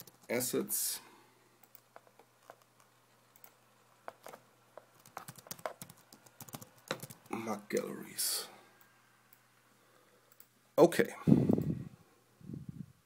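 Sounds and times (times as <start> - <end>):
computer keyboard typing: 0.0 - 0.3, 1.6 - 7.9.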